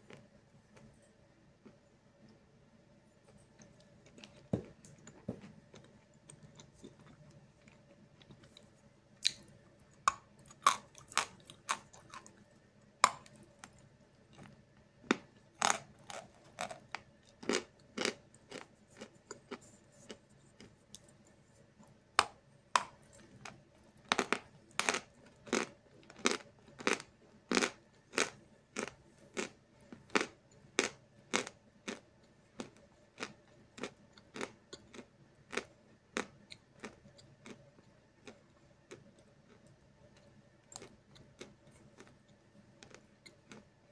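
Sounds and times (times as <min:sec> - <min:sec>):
chalk crunching as chewed: 0:03.3 - 0:21.4, 0:22.8 - 0:43.7.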